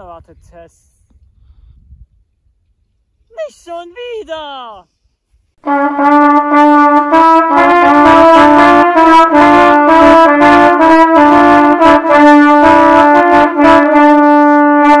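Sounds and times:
brass melody: 5.6 - 15.0.

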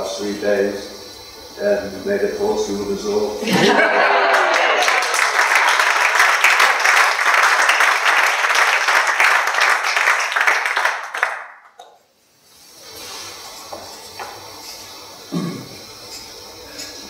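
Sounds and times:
people applauding: 3.6 - 11.8.

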